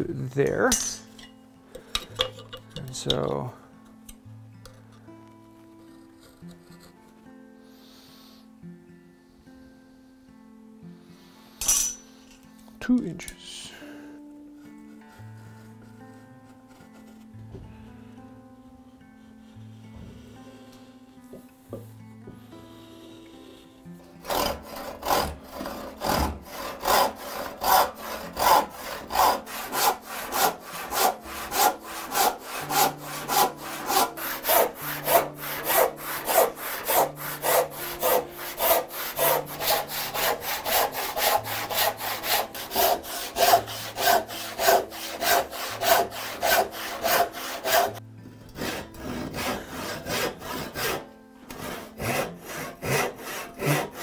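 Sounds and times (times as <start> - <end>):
hand saw cutting wood: 22.7 - 54.0.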